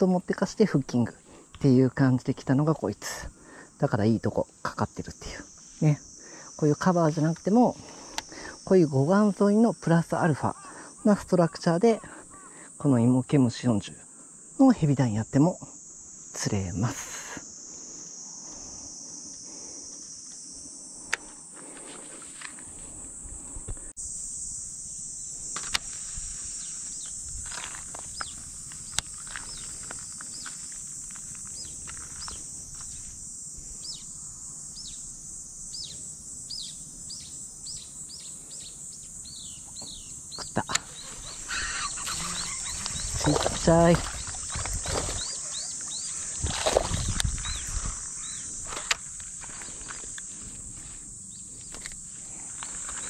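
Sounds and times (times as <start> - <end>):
high-pitched insect buzz: 0.0 - 53.0
bird chirping: 35.7 - 46.3.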